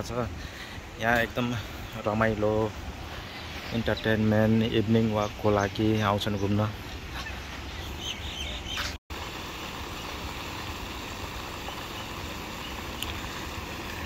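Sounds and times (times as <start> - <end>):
fountain spraying water: 9.1 - 14.0.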